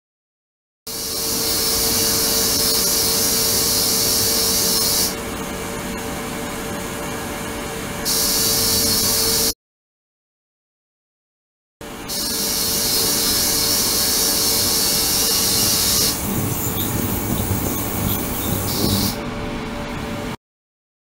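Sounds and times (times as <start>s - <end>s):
ultrasonic cleaner hiss: 0.9s - 5.2s, 8.1s - 9.5s, 12.1s - 19.2s
steady hum: 0.9s - 9.5s, 11.8s - 20.4s.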